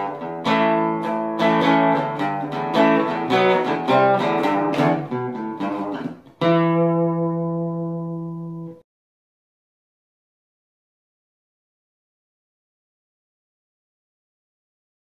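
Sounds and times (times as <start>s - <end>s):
acoustic guitar plucked notes: 0.0s - 8.8s
strummed guitar chord: 0.0s - 8.8s.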